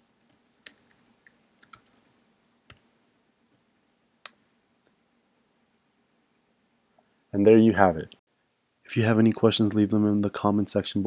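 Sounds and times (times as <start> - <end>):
computer keyboard keystrokes: 0.3 - 2.0.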